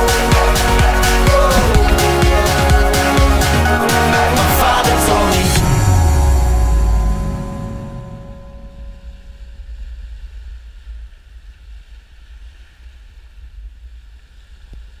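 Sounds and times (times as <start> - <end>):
wind buffeting microphone: 0.6 - 3.3.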